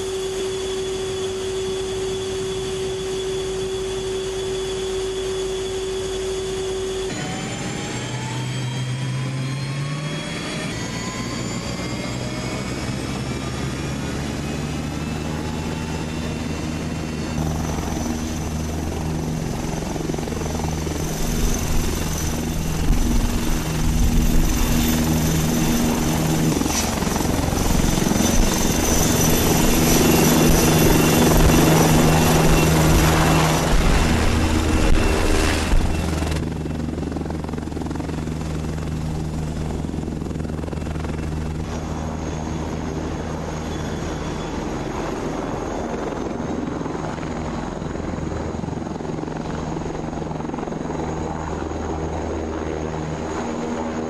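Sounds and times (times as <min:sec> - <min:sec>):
helicopter engines and rotor: 0:00.0 - 0:54.0
high engine whine: 0:00.0 - 0:54.0.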